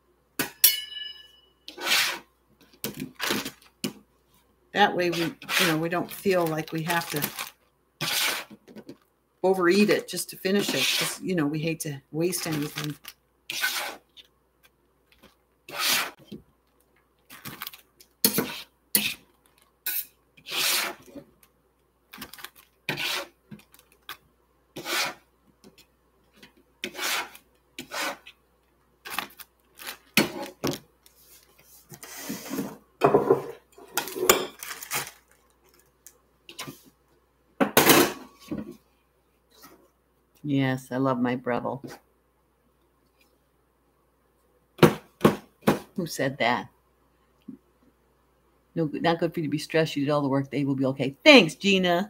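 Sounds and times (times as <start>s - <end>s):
knife scraping on cutting board: 1.7s - 2.2s, 5.1s - 5.8s, 8.0s - 8.6s, 10.6s - 11.2s, 13.5s - 14.1s, 15.7s - 16.2s, 18.3s - 19.2s, 19.9s - 21.2s, 22.9s - 23.3s, 24.8s - 25.2s, 26.8s - 28.3s
plastic bag crinkling: 5.0s - 7.7s, 12.3s - 13.2s, 17.2s - 18.5s, 22.1s - 22.9s, 23.5s - 24.2s, 29.0s - 31.6s, 34.0s - 36.2s.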